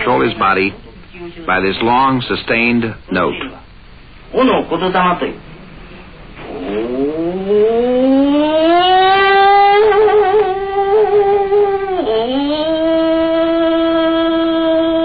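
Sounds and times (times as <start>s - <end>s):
old man intoning sustained note: 6.4s - 15.0s.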